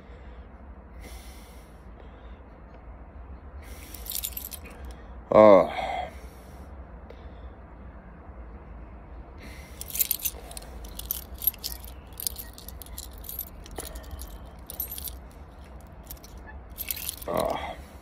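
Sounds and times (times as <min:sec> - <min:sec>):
keys jangling: 0:03.9 - 0:04.9, 0:09.8 - 0:17.7.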